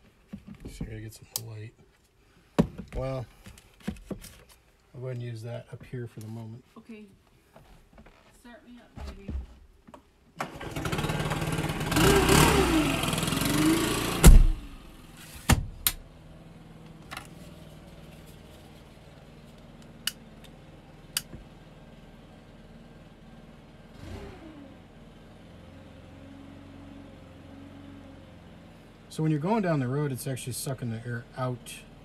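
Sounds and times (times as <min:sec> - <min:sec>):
leaf blower engine revving: 0:10.4 - 0:15.0, 0:24.0 - 0:24.9
loud thump: 0:14.2 - 0:14.7.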